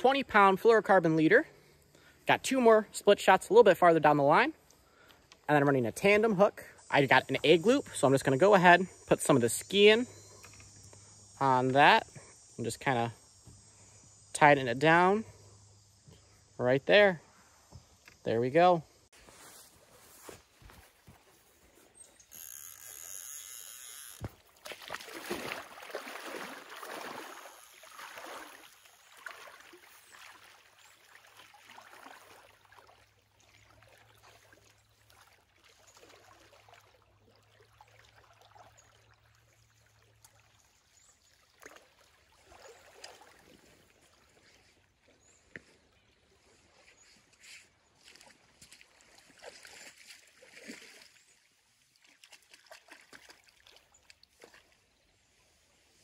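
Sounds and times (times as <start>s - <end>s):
river water trickling and splashing: 19.3s - 56.0s.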